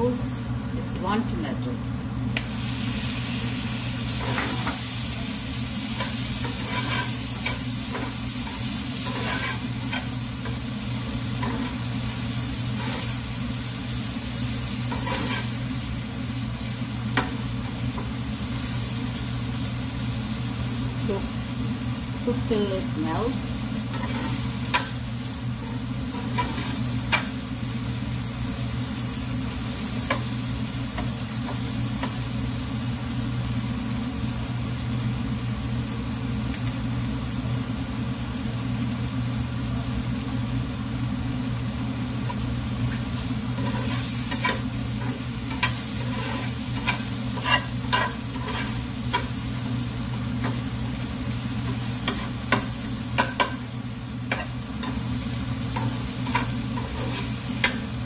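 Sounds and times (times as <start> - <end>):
low steady hum: 0.0 - 37.0
vegetables frying in a pan: 0.0 - 58.0
fork clicking and scraping pan: 6.0 - 10.6, 14.9 - 15.5, 23.9 - 25.0, 25.6 - 27.3, 43.6 - 49.4, 51.6 - 53.6, 54.3 - 55.0, 55.7 - 57.8.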